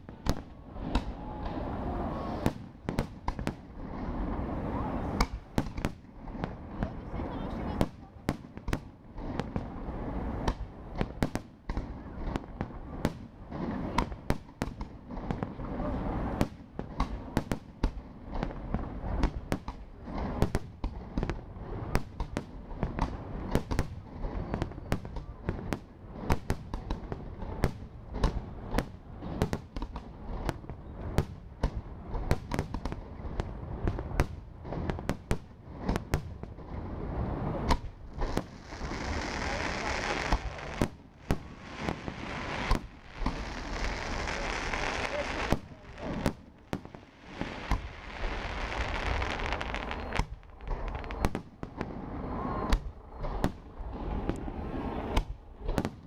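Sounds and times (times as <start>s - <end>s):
firework shells bursting: 38.2s - 51.4s.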